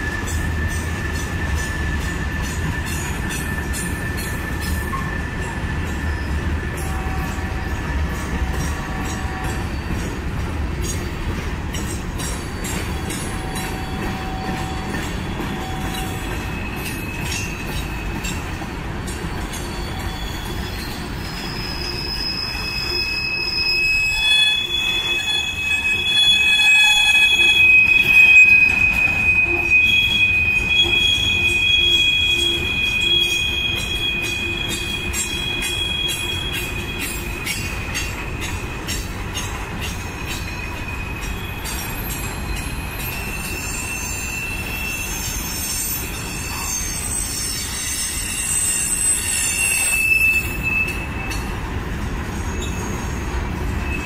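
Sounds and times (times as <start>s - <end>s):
wheels clicking on track: 0.0s - 48.2s
train rumble: 0.0s - 54.0s
train wheels squealing on rail: 0.0s - 54.0s.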